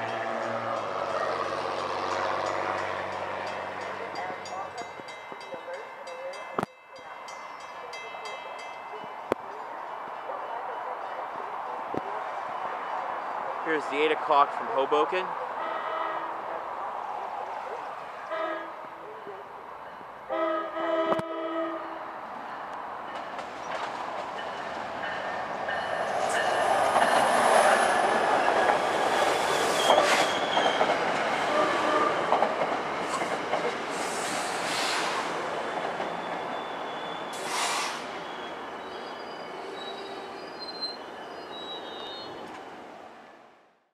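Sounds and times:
train rumble and wheel noise: 0:00.0 - 0:43.5
train horn blast: 0:15.6 - 0:16.4, 0:18.3 - 0:18.8, 0:20.3 - 0:22.0, 0:31.4 - 0:32.3.

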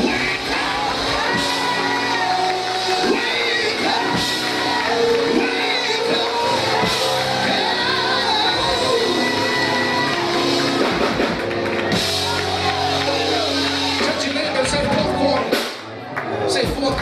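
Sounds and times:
voices shouting and singing: 0:00.0 - 0:10.8
church music held chords: 0:00.0 - 0:15.5.

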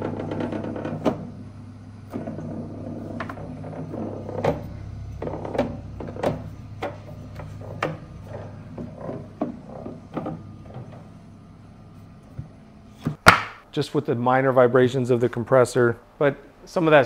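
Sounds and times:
fridge compressor humming: 0:00.0 - 0:13.6.

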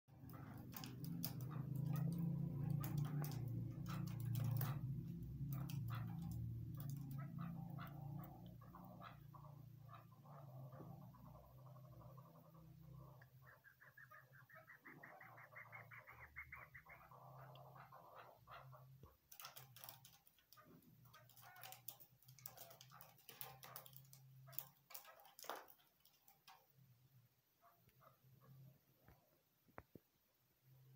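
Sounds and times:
partridges calling: 0:00.2 - 0:20.0.

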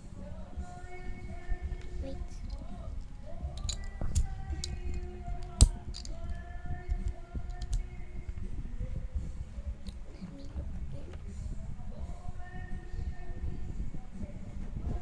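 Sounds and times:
plastic bricks clicking: 0:03.6 - 0:06.2, 0:07.5 - 0:07.8.

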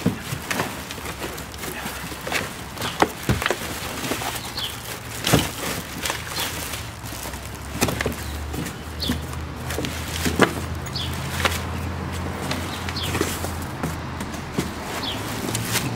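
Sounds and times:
plastic wrapping crinkling: 0:00.0 - 0:13.8
cardboard box rustling and knocking: 0:00.0 - 0:15.9
bird chirping: 0:04.0 - 0:05.4, 0:08.0 - 0:09.3, 0:10.8 - 0:11.4, 0:12.5 - 0:13.3, 0:14.9 - 0:15.3.

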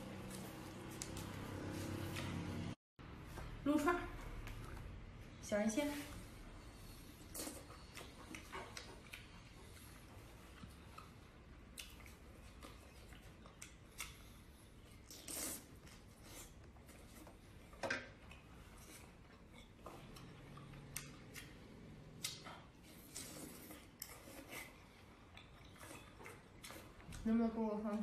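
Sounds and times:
wet chewing and biting: 0:07.3 - 0:17.4.

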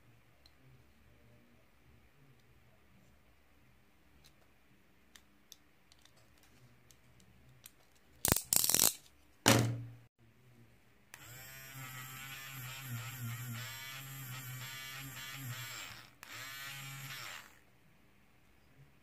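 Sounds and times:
electric eraser buzzing: 0:11.2 - 0:17.6.

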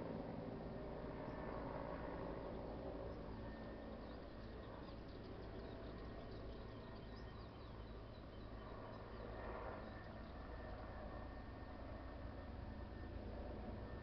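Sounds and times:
faint outdoor background noise: 0:00.0 - 0:14.0
small birds chirping: 0:03.0 - 0:10.7.

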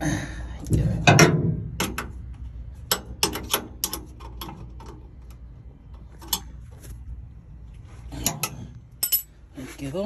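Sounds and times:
metal clicks and clinks of tools: 0:08.2 - 0:09.3.

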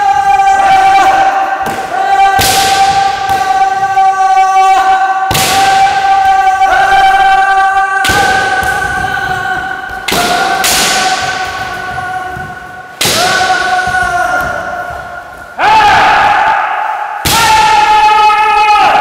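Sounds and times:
people shouting: 0:00.0 - 0:19.0
bamboo swords striking: 0:01.6 - 0:03.8, 0:05.3 - 0:07.1, 0:08.0 - 0:16.6, 0:17.2 - 0:17.8.

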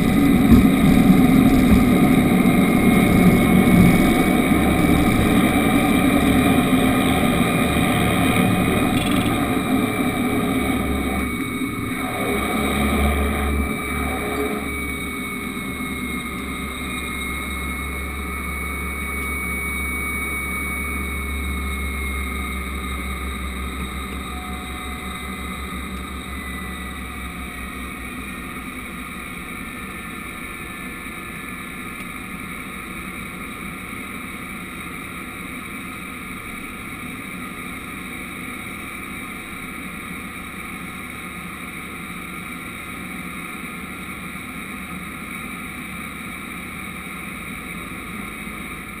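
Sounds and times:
propeller hum: 0:00.0 - 0:49.0
turbine whine: 0:00.0 - 0:49.0.

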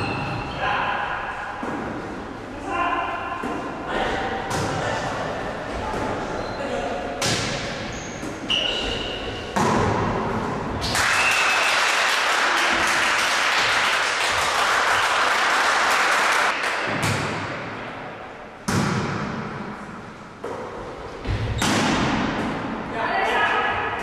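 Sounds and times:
volleyball hits with echo: 0:03.3 - 0:05.2, 0:07.2 - 0:11.3, 0:16.5 - 0:18.0, 0:18.6 - 0:22.9
shoe squeak: 0:06.2 - 0:06.7, 0:07.8 - 0:09.5
clapping and cheering: 0:10.9 - 0:16.9.

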